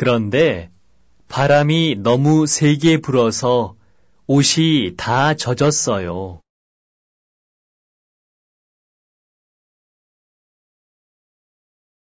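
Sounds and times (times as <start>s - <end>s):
person speaking: 0.0s - 6.5s.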